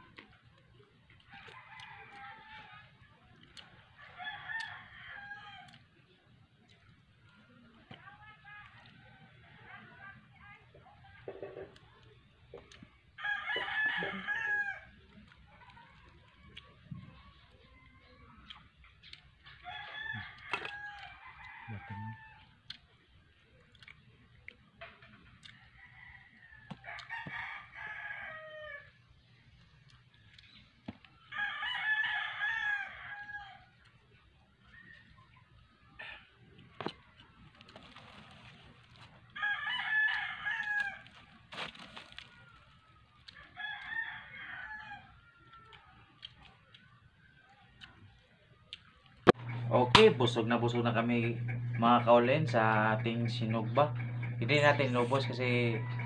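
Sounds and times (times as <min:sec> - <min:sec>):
rooster crowing: 0:04.0 - 0:05.8, 0:13.2 - 0:15.0, 0:19.6 - 0:22.5, 0:25.5 - 0:29.0, 0:31.2 - 0:33.8, 0:39.3 - 0:41.2, 0:42.2 - 0:46.0, 0:49.4 - 0:56.0.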